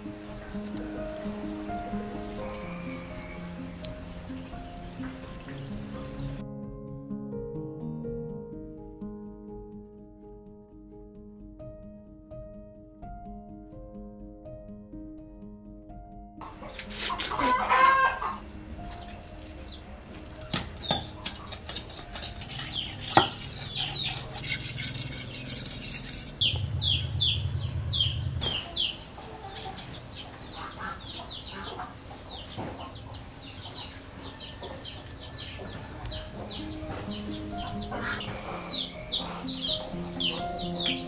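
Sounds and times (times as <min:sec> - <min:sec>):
chickens clucking: 0:16.4 - 0:19.1, 0:28.4 - 0:41.0
chicks peeping: 0:26.4 - 0:41.0.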